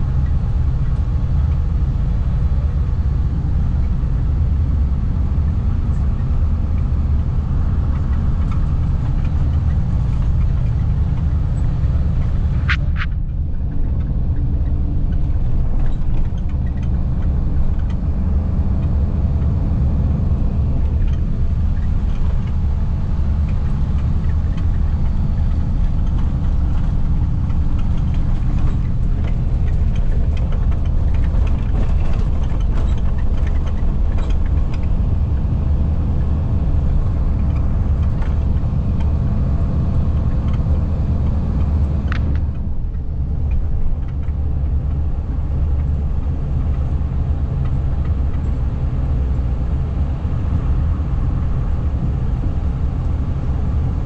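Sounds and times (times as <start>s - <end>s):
vehicle engine rumbling: 0.0s - 54.0s.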